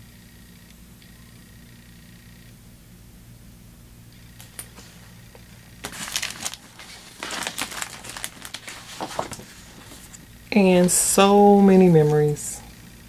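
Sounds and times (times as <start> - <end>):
shopping bag crinkling: 4.4 - 10.2.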